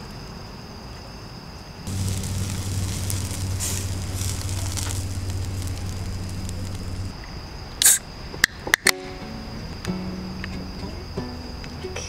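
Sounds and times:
crackling and sizzling: 0:01.9 - 0:07.2
low hum: 0:01.9 - 0:07.2.

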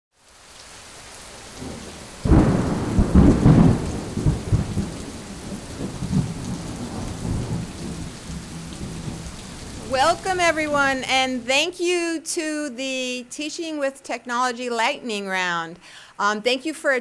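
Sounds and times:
steady rain: 0:00.1 - 0:13.1
thunderclap rumbling: 0:01.6 - 0:11.5.

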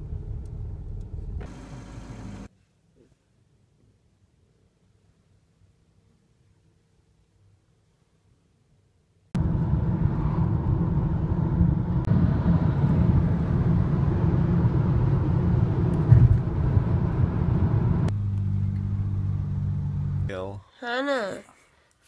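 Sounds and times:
car road and engine noise: 0:00.0 - 0:02.5, 0:09.4 - 0:20.6.

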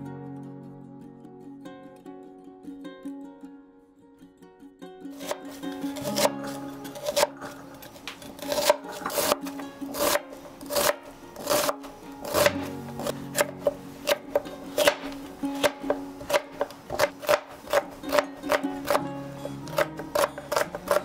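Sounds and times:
light background music: 0:05.1 - 0:21.0
knife cutting on wooden board: 0:05.2 - 0:21.0.

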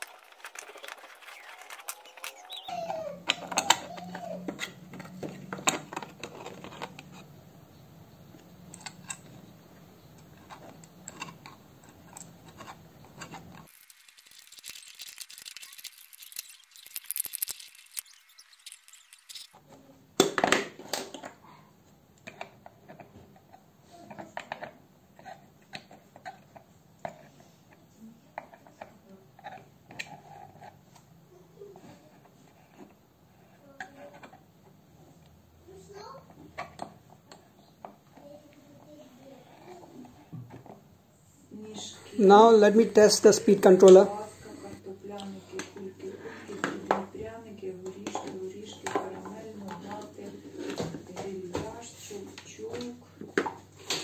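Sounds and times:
plastic clicks and scrapes: 0:00.0 - 0:07.3, 0:10.2 - 0:19.6.

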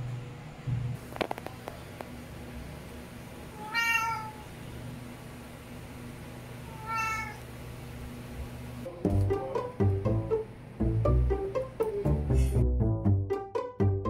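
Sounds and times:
cat meowing: 0:03.5 - 0:04.5, 0:06.7 - 0:07.4.

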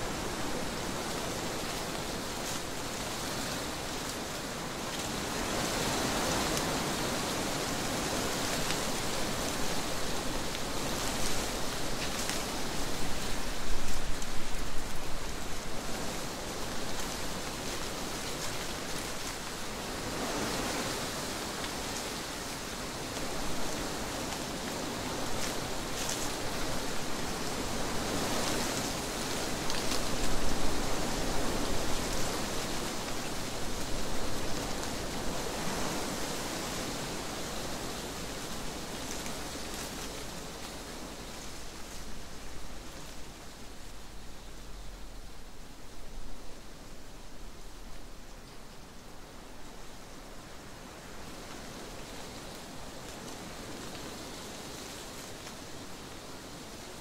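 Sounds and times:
wind blowing through trees: 0:00.0 - 0:57.0.

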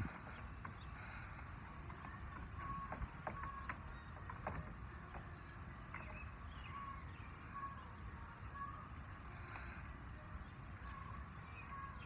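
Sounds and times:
wind rumble on microphone: 0:00.0 - 0:12.0
bird chirps: 0:02.0 - 0:09.0, 0:10.2 - 0:12.0.

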